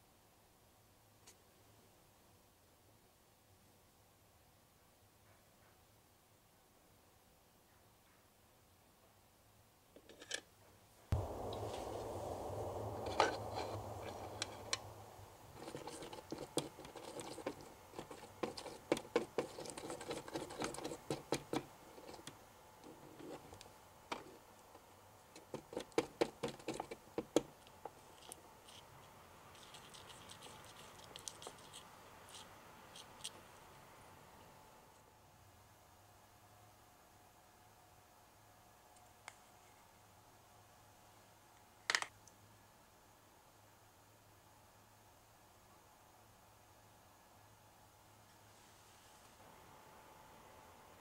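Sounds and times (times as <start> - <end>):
steady rushing noise: 11.1 - 17.3.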